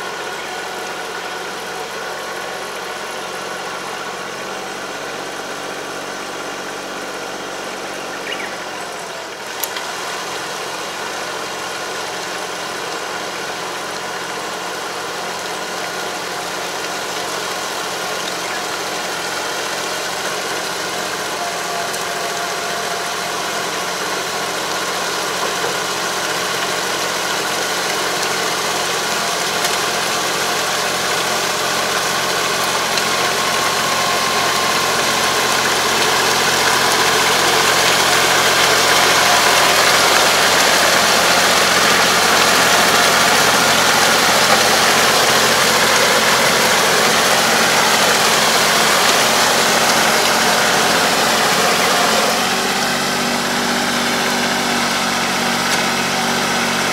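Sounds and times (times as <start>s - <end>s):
harrow churning mud and water: 0.0s - 56.9s
tractor diesel engine running: 0.0s - 56.9s.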